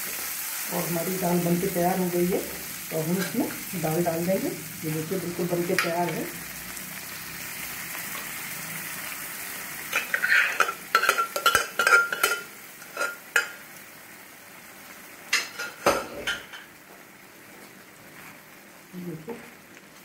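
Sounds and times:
food sizzling in a frying pan: 0.0 - 20.0
metal spoon clinking on pot: 9.9 - 13.5.

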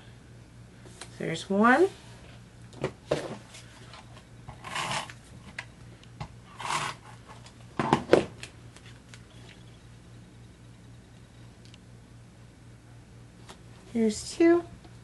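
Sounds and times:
cardstock rustling scrapes: 4.6 - 5.2.

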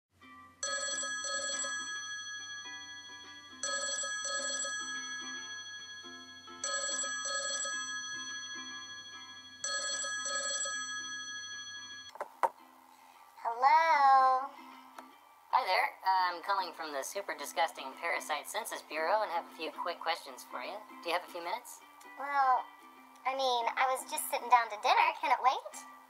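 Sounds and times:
telephone ringing: 0.6 - 12.1.

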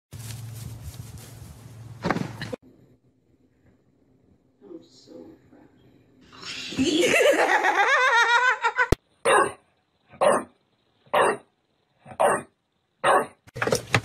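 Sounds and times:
person laughing heartily: 6.6 - 9.0
dog barking: 9.2 - 9.6, 10.2 - 10.5, 11.1 - 11.5, 12.1 - 13.4.

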